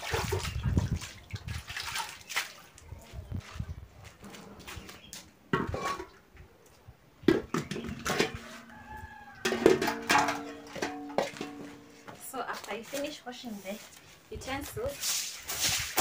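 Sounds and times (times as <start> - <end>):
metal pots knocking and ringing: 7.4 - 12.2.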